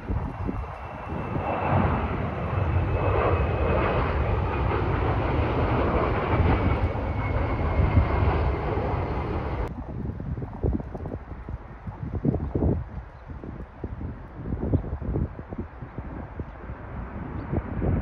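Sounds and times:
jet engine rumble with whine: 0:00.0 - 0:18.0.

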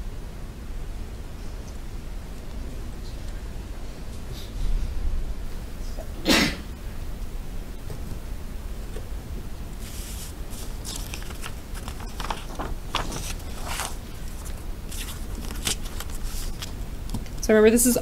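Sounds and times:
low electrical hum: 0:00.0 - 0:18.0
paper rustling: 0:09.8 - 0:17.4.

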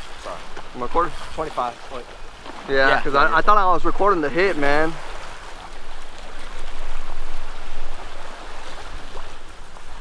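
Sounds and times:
sea surf splashing: 0:00.0 - 0:10.0
wind rumble on microphone: 0:03.0 - 0:10.0.

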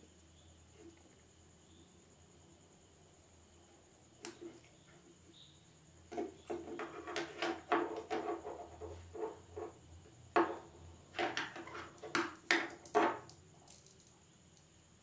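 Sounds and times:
plastic parts knocking on wood: 0:06.1 - 0:09.7, 0:10.3 - 0:13.3.

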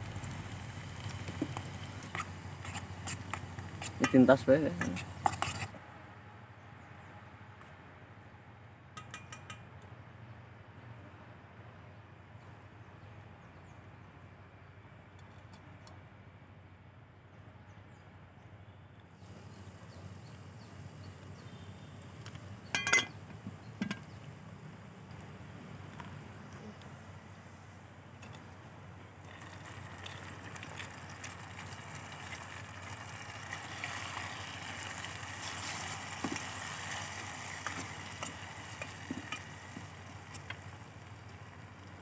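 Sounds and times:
light clinks: 0:09.0 - 0:09.8, 0:22.7 - 0:23.2
pot lid clanking: 0:22.7 - 0:23.2.

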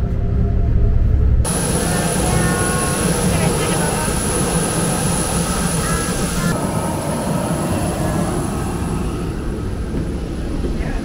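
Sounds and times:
jet airliner low rumble: 0:00.0 - 0:11.0
high-pitched jet whine: 0:00.1 - 0:11.0.

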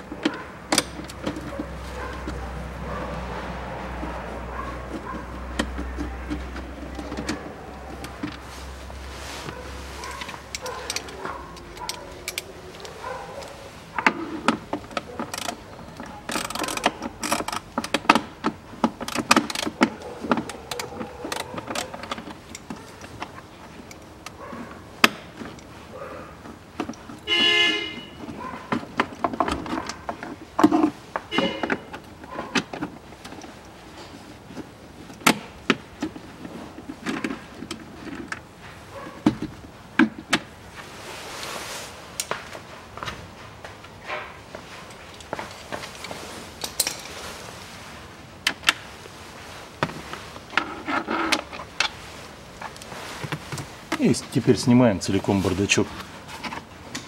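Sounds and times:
clicks and plastic rattles: 0:00.0 - 0:03.0, 0:03.9 - 0:08.5, 0:10.0 - 0:25.8, 0:26.4 - 0:40.5.

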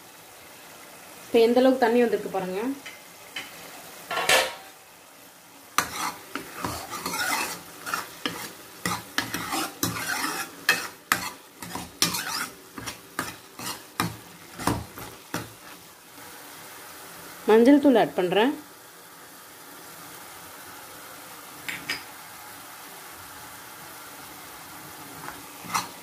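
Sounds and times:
soft sizzle: 0:00.0 - 0:26.0
metal ladle scraping a pan: 0:05.8 - 0:15.8, 0:25.2 - 0:26.0.

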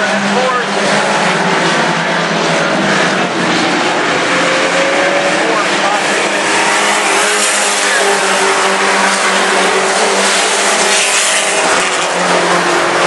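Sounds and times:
racing truck engines at full throttle: 0:00.0 - 0:13.0.

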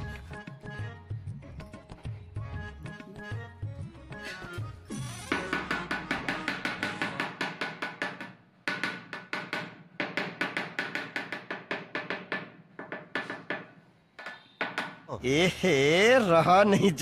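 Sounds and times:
trowel handle tapping tile: 0:05.4 - 0:15.1.

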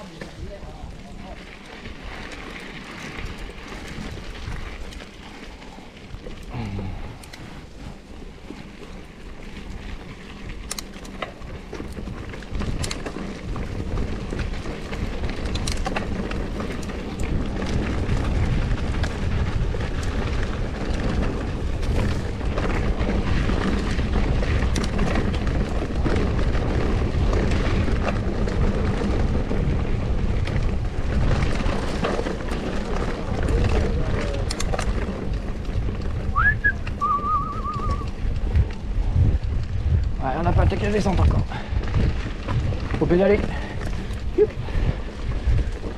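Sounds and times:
bike clicks and rattles: 0:00.0 - 0:45.9
bike tyres rolling over dirt: 0:00.0 - 0:45.9
wind buffeting microphone: 0:00.0 - 0:45.9.

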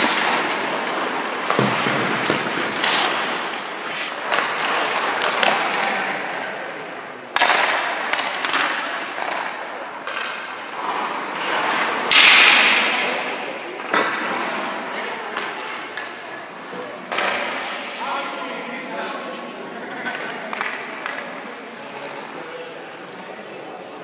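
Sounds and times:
sticks and pucks knocking: 0:00.0 - 0:06.0, 0:07.3 - 0:12.8, 0:20.0 - 0:21.4
skates scraping on ice: 0:00.0 - 0:18.0.

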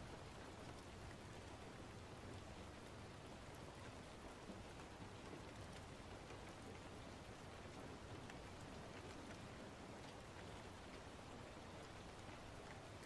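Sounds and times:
faint steady hiss: 0:00.0 - 0:13.0
light ticks: 0:00.0 - 0:13.0.

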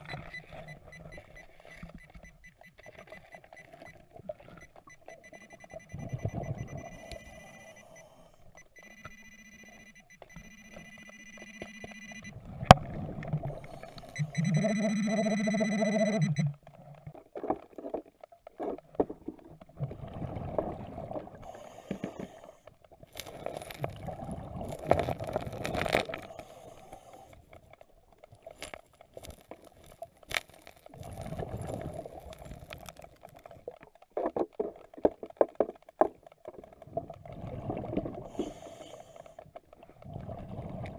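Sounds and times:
metal detector beeps: 0:00.0 - 0:12.4, 0:13.7 - 0:16.5
long loud detector tone: 0:05.1 - 0:12.3, 0:14.1 - 0:16.5.

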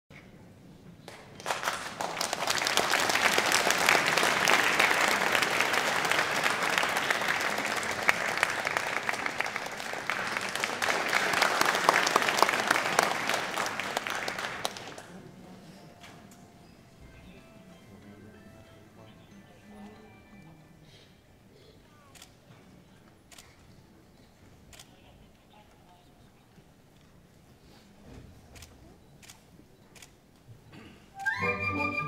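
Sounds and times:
audience applauding: 0:01.1 - 0:15.4.

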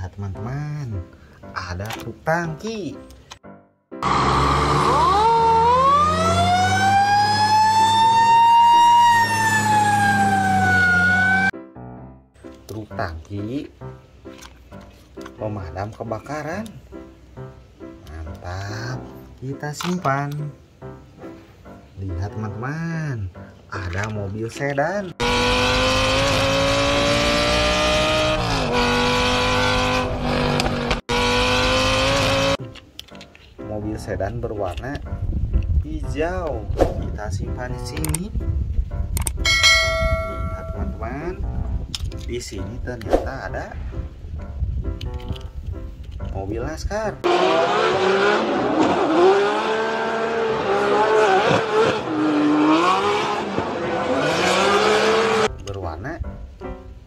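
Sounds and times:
car engine at high revs: 0:04.0 - 0:11.5, 0:25.2 - 0:32.6, 0:47.3 - 0:55.5
fire engine siren wailing: 0:04.0 - 0:11.5.

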